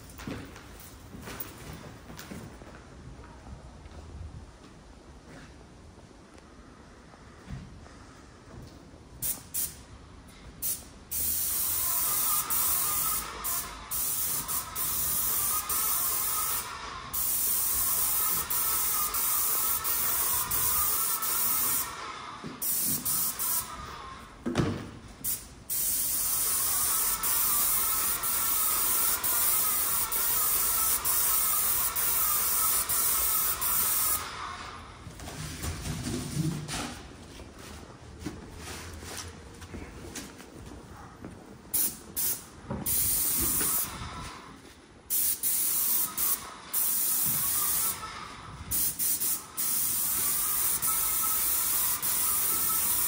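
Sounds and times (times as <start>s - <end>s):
electric paint sprayer hissing: 10.6s - 24.3s, 25.2s - 34.9s, 41.8s - 44.4s, 45.1s - 53.0s.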